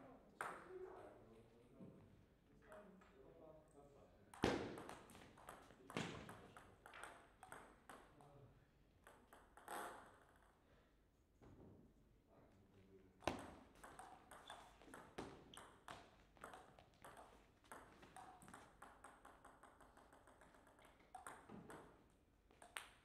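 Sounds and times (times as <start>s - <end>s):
ping pong ball clicking: 9.0s - 10.5s, 13.3s - 23.0s.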